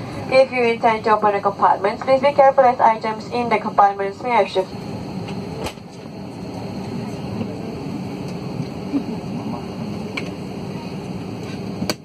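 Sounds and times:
airliner cabin engine hum: 0:00.0 - 0:12.0.

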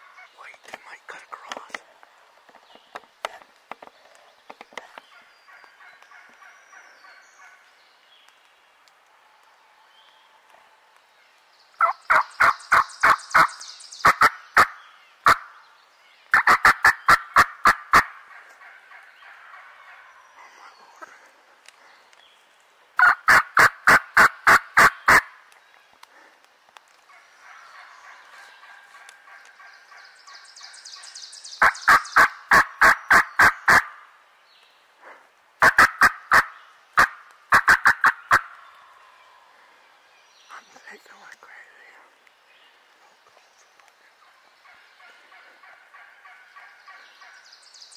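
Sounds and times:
soft turkey calling: 0:11.8 - 0:15.5, 0:23.0 - 0:25.3, 0:35.6 - 0:38.6
turkey yelping: 0:23.0 - 0:25.2, 0:35.6 - 0:38.5.

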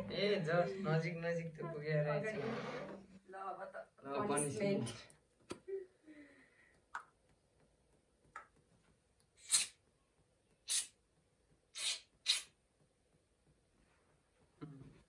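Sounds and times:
aerosol can hissing: 0:09.4 - 0:09.8, 0:10.7 - 0:11.0, 0:11.8 - 0:12.6.

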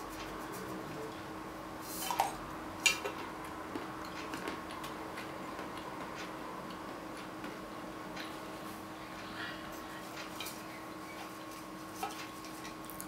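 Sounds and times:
crunchy chewing: 0:12.7 - 0:13.0.

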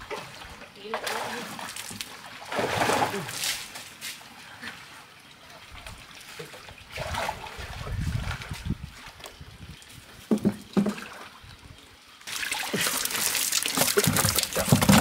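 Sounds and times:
water sloshing from hand net: 0:00.0 - 0:03.9, 0:05.8 - 0:09.2, 0:12.3 - 0:15.0
fish thrashing and splashing: 0:12.3 - 0:15.0.

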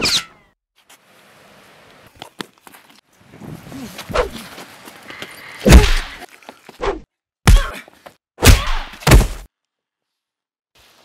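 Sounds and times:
punches thudding: 0:05.7 - 0:06.2, 0:07.5 - 0:07.8, 0:08.4 - 0:09.5.

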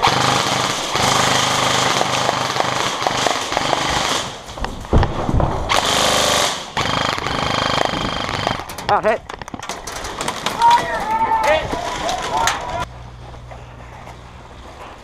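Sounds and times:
rifles firing rapid bursts: 0:00.0 - 0:04.5, 0:05.7 - 0:08.7
low thumps: 0:02.7 - 0:05.9.

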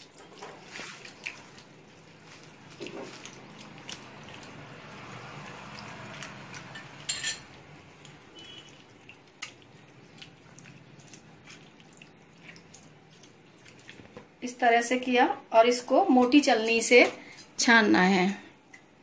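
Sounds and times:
wet squelching by hand: 0:00.0 - 0:07.2, 0:07.9 - 0:14.4
metallic clink against bowl: 0:06.7 - 0:07.5, 0:15.9 - 0:17.6.

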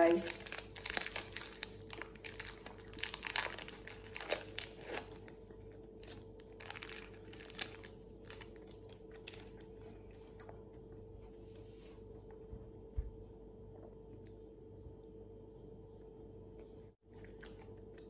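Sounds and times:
foil wrapper crinkling: 0:00.0 - 0:05.4, 0:06.0 - 0:09.7.

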